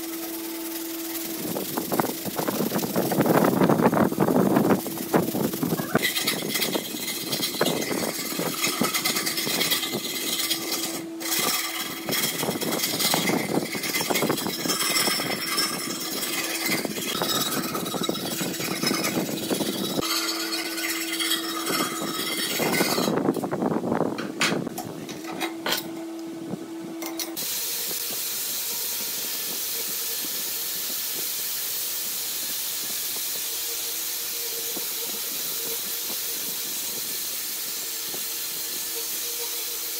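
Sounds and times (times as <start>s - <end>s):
angle grinder hissing: 0.0s - 23.5s, 27.2s - 39.9s
hand file rasping on steel: 4.8s - 23.2s.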